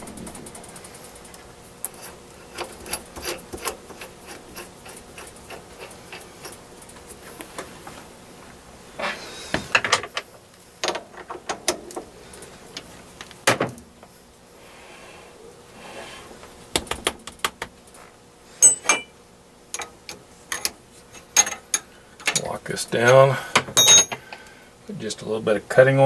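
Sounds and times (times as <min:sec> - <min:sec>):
ringing metal clink: 0:18.6 - 0:19.1, 0:23.8 - 0:24.2.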